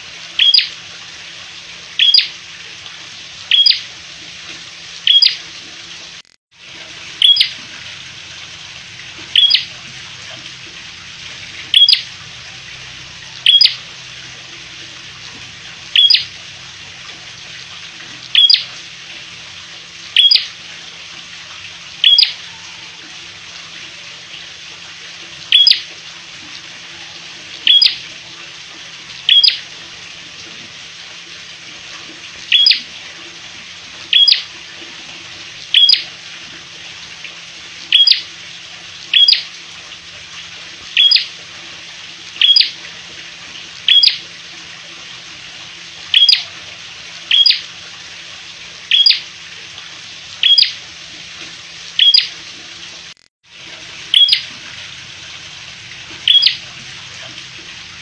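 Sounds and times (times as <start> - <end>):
bird chip calls: 0.4 - 0.7, 2.0 - 2.3, 3.5 - 3.8, 5.1 - 5.4, 7.2 - 7.6, 9.4 - 9.7, 11.7 - 12.1, 13.4 - 13.8, 16.0 - 16.3, 18.4 - 18.7, 20.2 - 20.5, 22.0 - 22.8, 25.5 - 25.8, 27.7 - 28.0, 29.3 - 29.6, 32.5 - 32.8, 34.1 - 34.4, 35.8 - 36.0, 37.9 - 38.2, 39.1 - 39.4, 41.0 - 41.3, 42.4 - 42.7, 43.9 - 44.2, 46.1 - 46.5, 47.3 - 47.6, 48.9 - 49.2, 50.4 - 50.8, 52.0 - 52.3, 54.1 - 54.4, 56.3 - 56.6.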